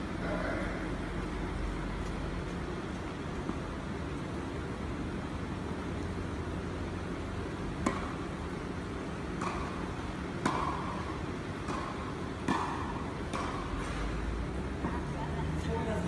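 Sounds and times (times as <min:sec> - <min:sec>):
steady low hum: 0:00.0 - 0:16.0
tennis ball bouncing: 0:07.7 - 0:08.6, 0:09.2 - 0:14.2
rackets hitting tennis ball: 0:07.8 - 0:08.2, 0:09.3 - 0:14.2.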